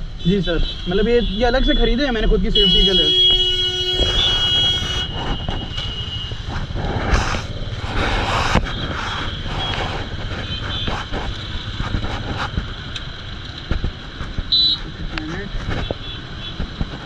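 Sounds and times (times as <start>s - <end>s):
passing vehicles road noise: 0.0s - 17.0s.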